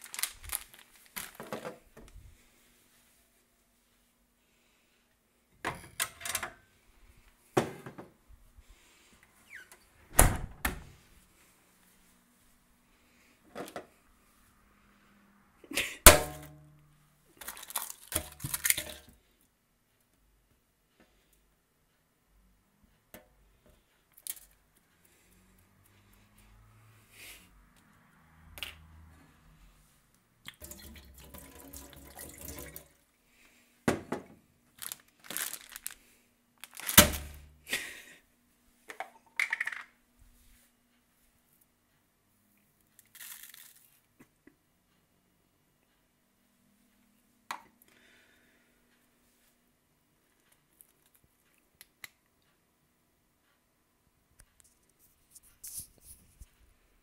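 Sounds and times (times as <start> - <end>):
tap water running into sink: 30.5 - 33.0.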